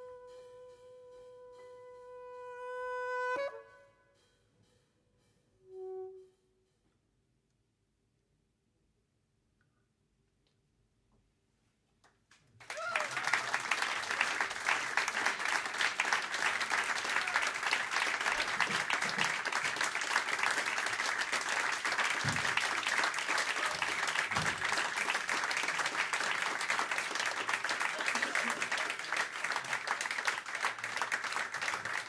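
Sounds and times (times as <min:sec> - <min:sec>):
audience applauding: 0:12.6 - 0:32.0.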